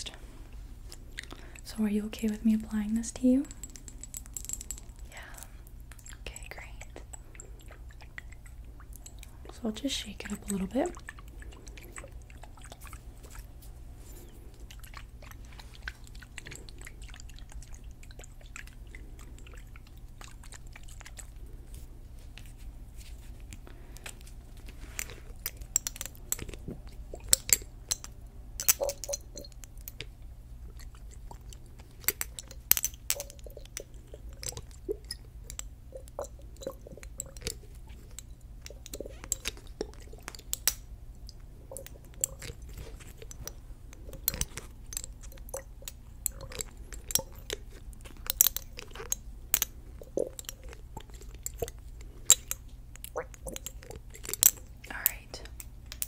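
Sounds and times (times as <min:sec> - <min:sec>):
glass bottle clicks and crackles: 0:03.4 - 0:05.1, 0:24.9 - 0:56.0.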